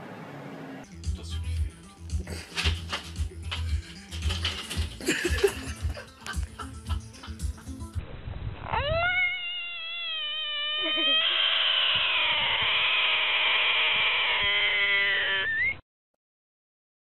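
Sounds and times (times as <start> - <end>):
frog distress scream: 8.6 - 15.8.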